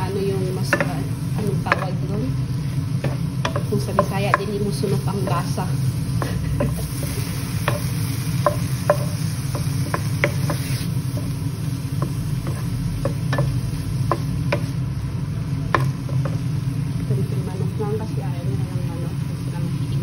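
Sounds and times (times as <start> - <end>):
chicken sizzling: 0.0 - 20.0
steady low hum: 0.0 - 20.0
spatula scraping frying pan: 6.0 - 11.4.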